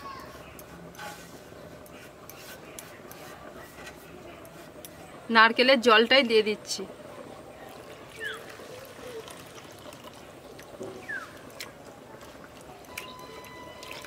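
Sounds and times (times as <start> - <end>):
water trickling into bowl: 7.1 - 14.0.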